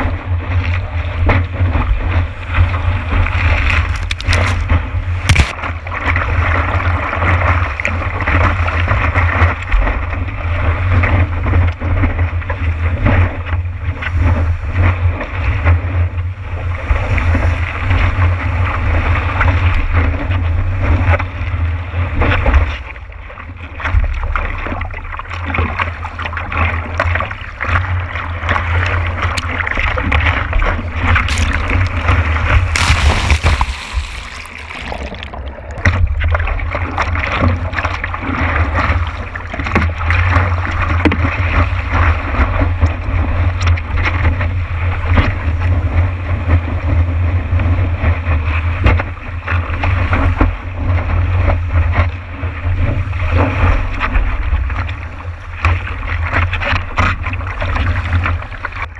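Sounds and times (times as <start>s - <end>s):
whitewater rushing and splashing: 1.6s - 11.2s, 24.6s - 42.6s.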